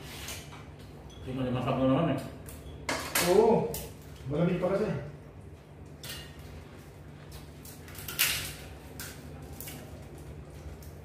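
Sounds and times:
crab shells clicking and cracking: 0:07.6 - 0:11.0.

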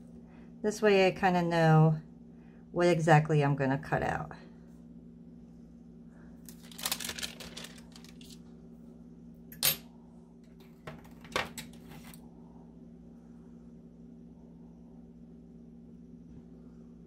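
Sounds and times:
low hum: 0:04.3 - 0:17.0
paper rustling: 0:06.5 - 0:08.4.

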